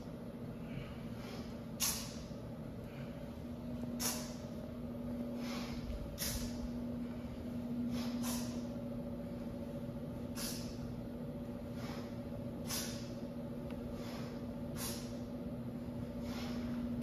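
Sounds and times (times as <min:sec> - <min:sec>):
low hum: 0:00.0 - 0:17.0
person exhaling sharply: 0:00.7 - 0:02.3, 0:04.0 - 0:04.4, 0:05.4 - 0:06.6, 0:07.9 - 0:08.7, 0:10.3 - 0:10.8, 0:11.8 - 0:13.2, 0:14.0 - 0:15.3, 0:16.2 - 0:16.8.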